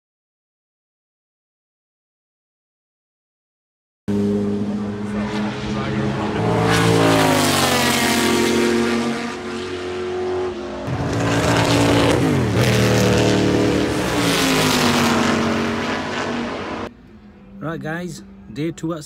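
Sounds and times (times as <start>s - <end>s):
racing cars passing at speed: 4.1s - 19.0s.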